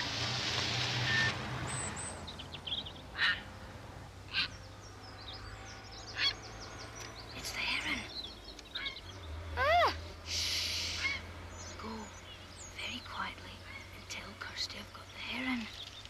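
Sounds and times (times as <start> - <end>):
small birds chirping: 1.2 - 3.6, 4.2 - 16.0
loud waterfowl calls: 3.2 - 3.5.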